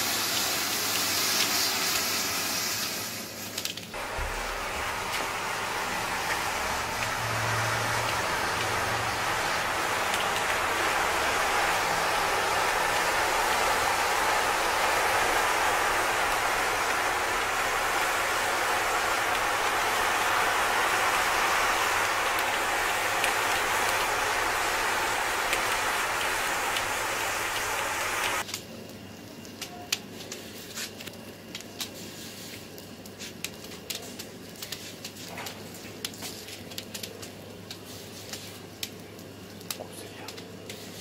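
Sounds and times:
rushing hiss of flame: 0.0s - 28.5s
fire crackling and popping: 3.4s - 41.0s.

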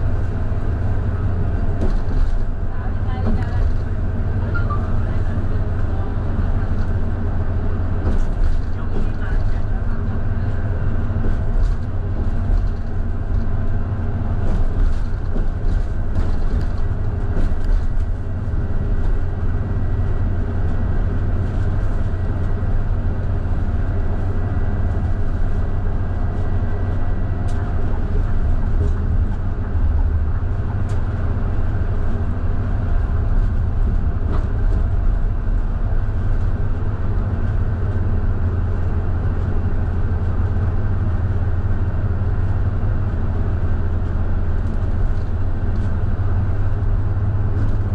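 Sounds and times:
bus diesel engine drone: 0.0s - 47.9s
road noise: 0.0s - 47.9s
light rattles and clicks: 0.2s - 3.9s, 7.8s - 38.0s, 43.5s - 47.9s.

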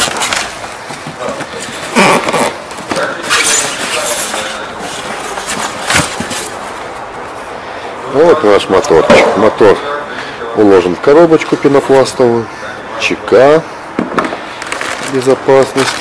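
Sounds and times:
cardboard and styrofoam rustling: 0.0s - 6.9s, 14.6s - 16.0s.

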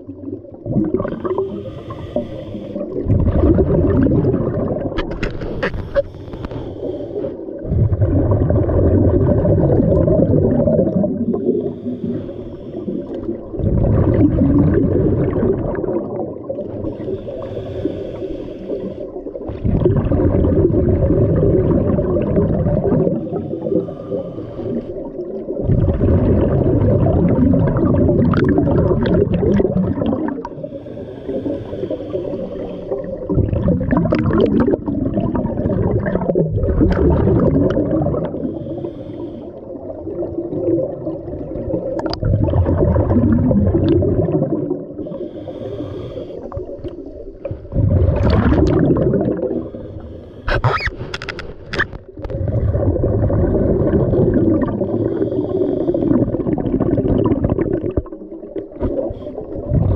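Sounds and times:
exhaled bubbles rumbling: 0.0s - 59.9s
regulator inhalation hiss: 1.4s - 2.8s, 5.7s - 7.4s, 11.4s - 13.3s, 16.8s - 19.2s, 23.3s - 25.0s, 30.6s - 33.2s, 38.4s - 39.6s, 45.0s - 46.6s, 55.0s - 56.2s.

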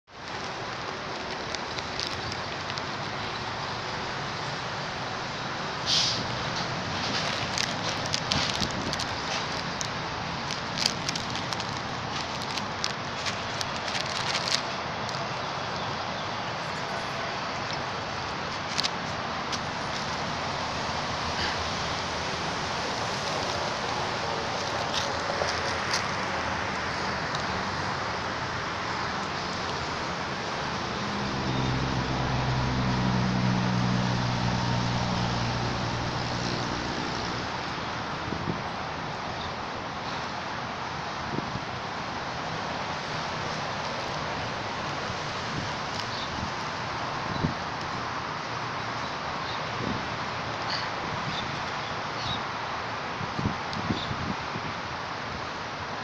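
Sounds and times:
steady outdoor hiss: 0.1s - 56.0s
plastic bag crinkling: 0.3s - 3.1s, 6.8s - 15.3s, 18.4s - 20.2s, 23.0s - 26.2s.

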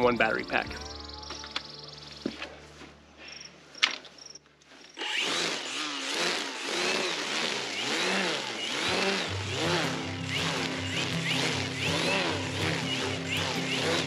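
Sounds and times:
low music tones: 0.0s - 3.2s, 8.8s - 14.0s
string trimmer cutting grass: 4.9s - 14.0s.

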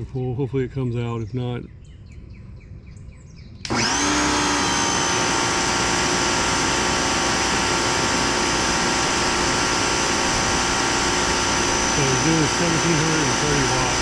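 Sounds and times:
pressure washer motor whining: 3.6s - 14.0s.

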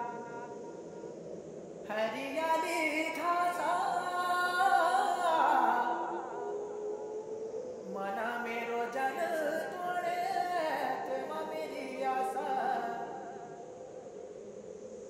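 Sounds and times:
person singing wavering melody: 7.8s - 13.5s.

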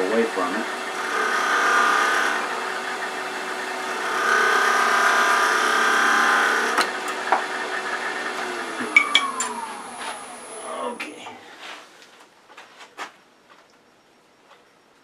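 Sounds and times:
wood lathe humming: 0.0s - 11.2s
gouge cutting wood: 0.6s - 9.0s.

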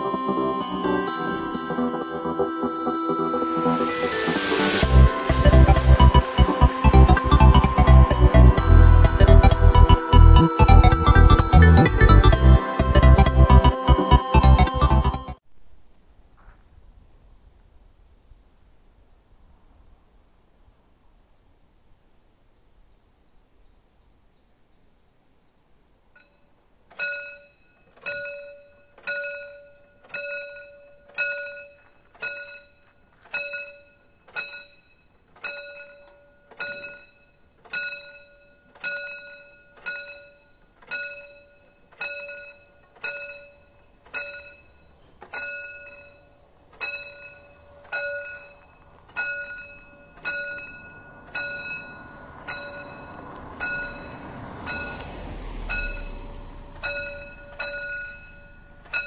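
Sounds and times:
railway crossing bell striking: 0.0s - 15.4s, 26.2s - 59.0s
rising rush of noise: 0.0s - 15.4s, 49.6s - 59.0s.

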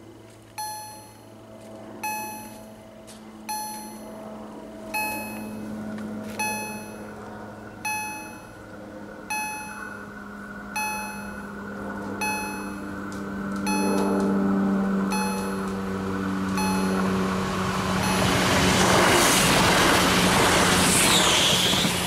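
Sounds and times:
low steady hum: 0.0s - 20.8s
level crossing warning gong: 0.6s - 1.4s, 2.0s - 2.8s, 3.4s - 4.2s, 4.9s - 5.7s, 6.3s - 13.0s, 13.6s - 20.0s.

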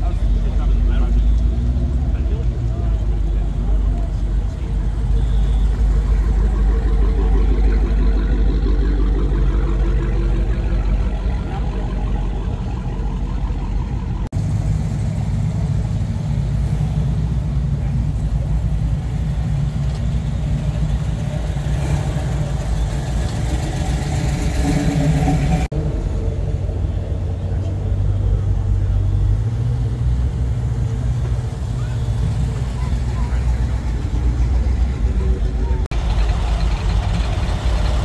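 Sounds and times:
car engines rumbling past: 0.0s - 38.0s.

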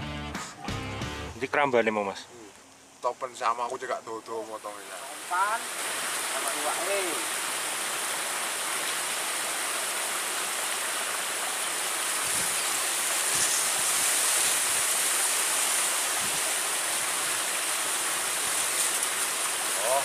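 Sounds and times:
river water rushing: 4.6s - 20.0s.

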